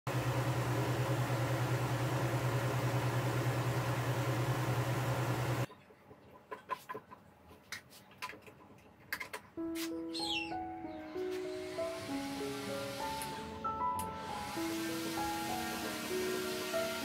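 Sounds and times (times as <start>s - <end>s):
electric fan running: 0.1s - 5.7s, 11.3s - 17.0s.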